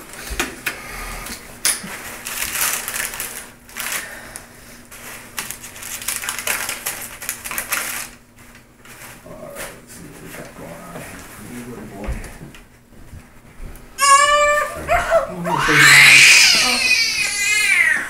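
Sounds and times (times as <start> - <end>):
wrappers crinkling and rustling: 1.8 - 10.5.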